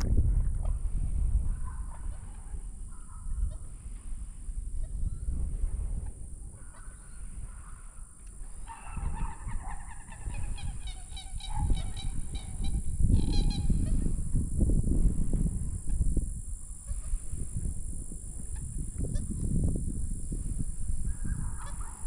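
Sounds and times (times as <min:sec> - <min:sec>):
steady low rumble: 0:00.0 - 0:08.7, 0:10.2 - 0:22.0
geese honking: 0:08.6 - 0:14.0, 0:21.4 - 0:22.0.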